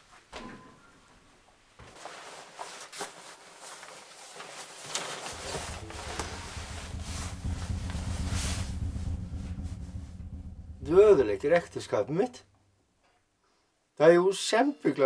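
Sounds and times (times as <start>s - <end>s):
padded jacket rustling: 1.8s - 5.3s
low steady hum: 5.3s - 12.9s.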